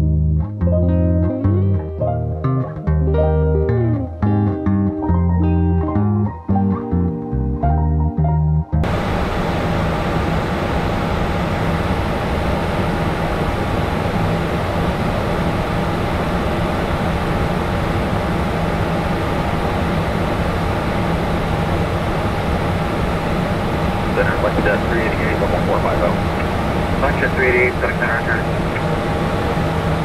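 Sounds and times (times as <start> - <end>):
low engine hum: 8.7 - 30.0
airflow rushing: 8.8 - 30.0
faint high whine: 8.8 - 30.0.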